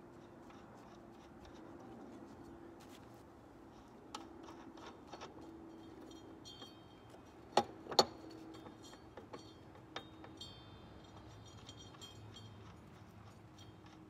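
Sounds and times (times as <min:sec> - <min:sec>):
hand tools clinking on metal: 0:04.2 - 0:14.0.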